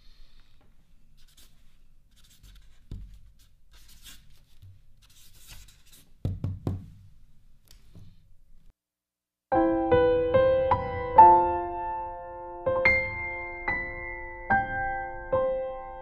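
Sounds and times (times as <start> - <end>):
marker scratching on paper: 1.2 - 6.1.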